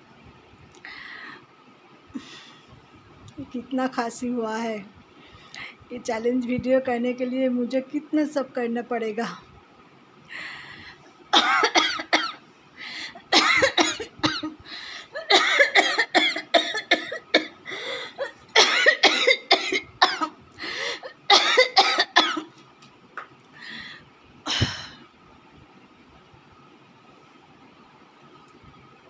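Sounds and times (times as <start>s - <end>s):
woman coughing: 11.4s - 12.4s, 13.2s - 14.6s, 15.2s - 20.4s, 21.0s - 22.5s.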